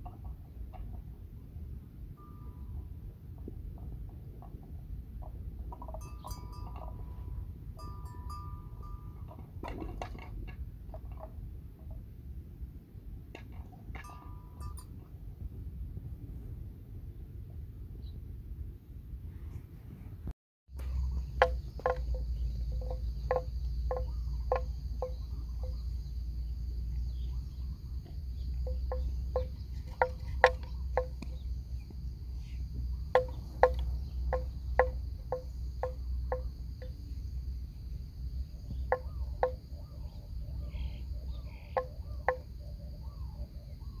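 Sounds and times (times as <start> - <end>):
low steady rumble: 0.0 - 44.0
animal knocking calls: 20.8 - 25.8, 28.5 - 31.5, 33.1 - 37.0, 38.7 - 39.9, 41.6 - 42.6.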